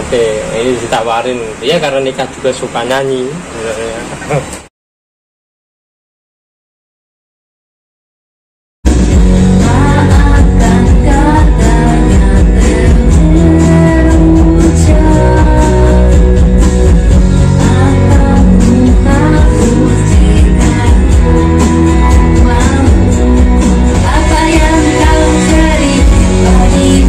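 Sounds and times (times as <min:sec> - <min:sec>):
amplified backing track with bass: 0:08.9 - 0:27.0
woman singing into a microphone: 0:09.4 - 0:27.0.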